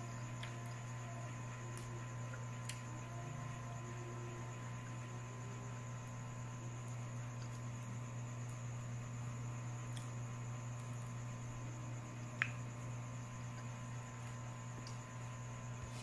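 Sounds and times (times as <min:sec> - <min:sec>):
low electrical hum: 0:00.0 - 0:16.0.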